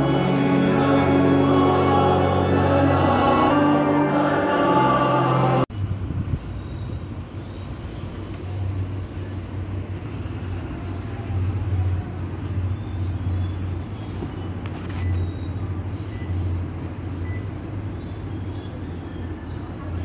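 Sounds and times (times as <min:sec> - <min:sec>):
low outdoor rumble: 0:00.0 - 0:14.7.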